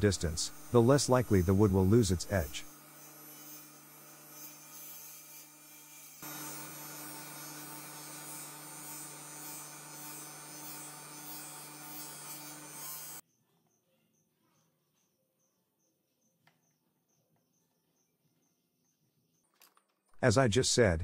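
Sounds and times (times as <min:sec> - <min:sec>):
electrical hum: 0:00.0 - 0:02.7.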